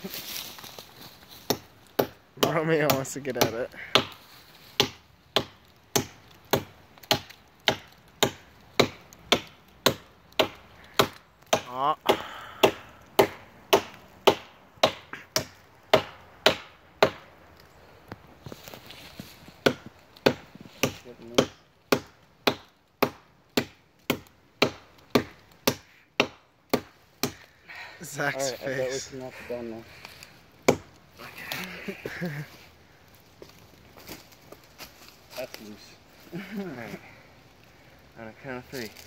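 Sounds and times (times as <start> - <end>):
hatchet chopping wood: 1.4 - 4.2, 4.8 - 17.3, 19.6 - 27.5, 30.6 - 31.0.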